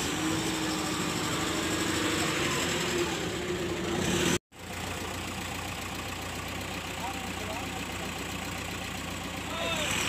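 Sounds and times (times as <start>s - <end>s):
diesel engine idling: 0.0s - 10.0s.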